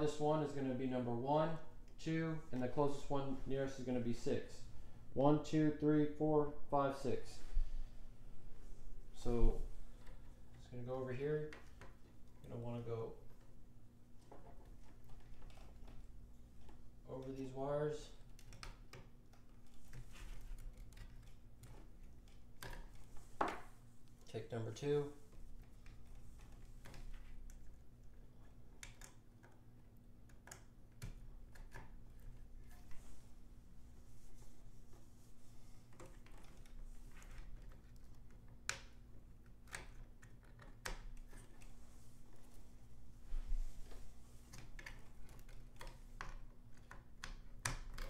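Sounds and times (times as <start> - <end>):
low steady hum: 0.0 - 48.0
clicks of plastic cable connectors: 28.7 - 33.0.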